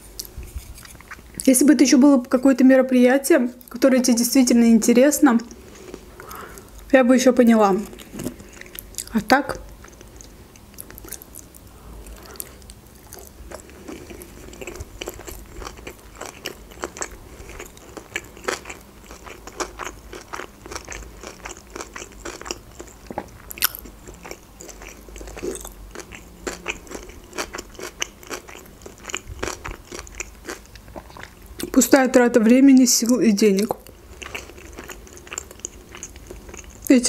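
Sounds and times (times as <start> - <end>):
close chewing with wet clicks: 9.8 - 31.8, 33.6 - 36.9.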